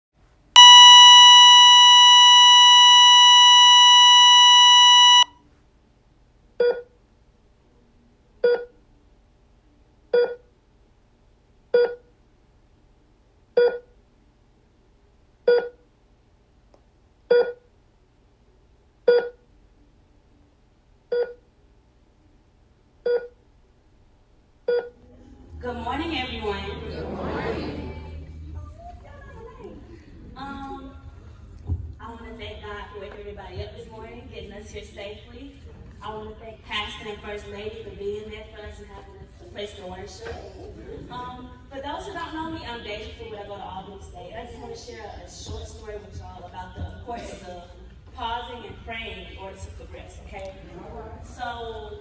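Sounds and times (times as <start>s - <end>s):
short electronic beeps: 0.6s - 5.3s
steady electronic beep: 0.6s - 5.3s.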